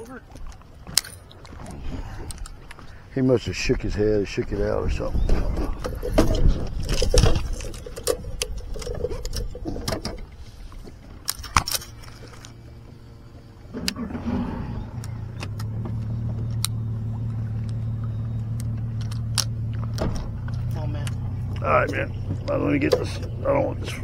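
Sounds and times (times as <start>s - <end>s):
outboard engine starting and idling: 4.6s - 24.0s
gear clicking and rattling: 4.8s - 12.6s, 15.0s - 24.0s.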